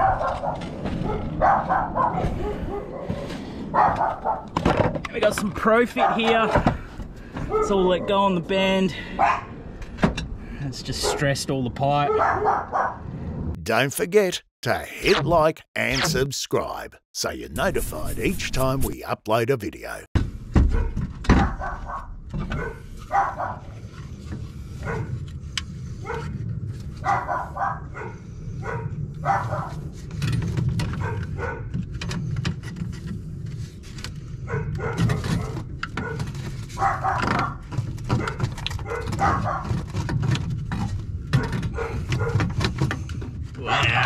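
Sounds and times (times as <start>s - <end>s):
dog barking: 0.0s - 4.5s, 6.0s - 6.4s, 7.5s - 8.2s, 9.2s - 9.5s, 12.0s - 13.0s, 20.7s - 23.7s, 24.8s - 25.1s, 26.0s - 26.3s, 27.0s - 29.8s, 31.0s - 31.7s, 34.5s - 36.2s, 36.8s - 37.6s, 38.2s - 39.8s, 41.4s - 42.5s.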